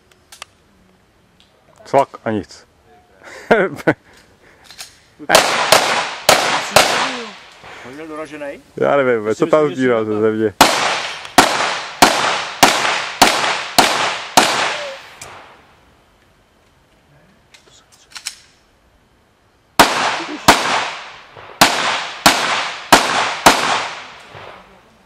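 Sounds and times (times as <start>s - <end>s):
pistol shots: 5.3s - 7.8s, 10.6s - 15.5s, 19.8s - 24.6s.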